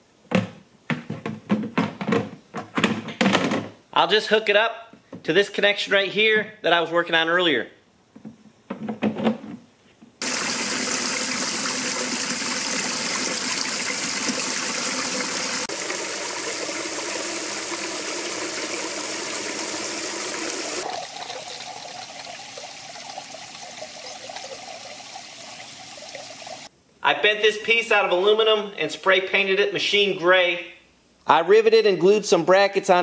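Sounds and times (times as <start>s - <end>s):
water spraying and splashing into tank: 10.2s - 26.7s.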